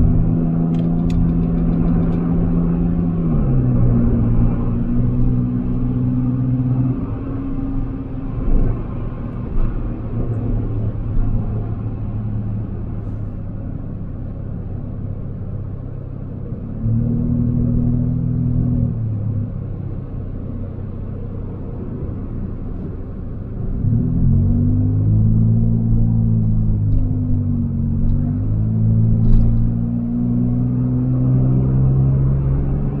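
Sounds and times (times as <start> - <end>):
car road noise rumble: 0.0 - 33.0
low engine drone: 0.0 - 33.0.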